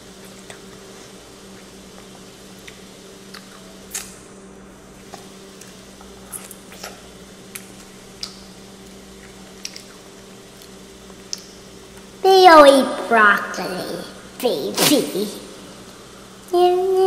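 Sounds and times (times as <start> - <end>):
child chewing corn: 0.0 - 4.2, 5.0 - 12.1
steady low hum: 0.0 - 17.0.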